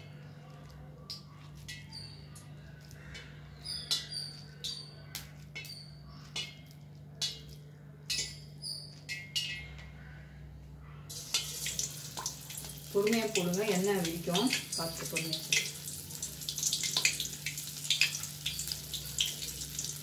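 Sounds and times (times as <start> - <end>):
hot oil sizzling: 11.1 - 20.0.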